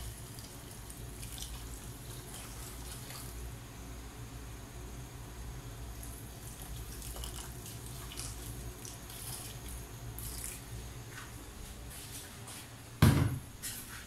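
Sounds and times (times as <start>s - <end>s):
hot water pouring into pot: 0.0s - 3.3s
loud knock: 13.0s - 13.4s.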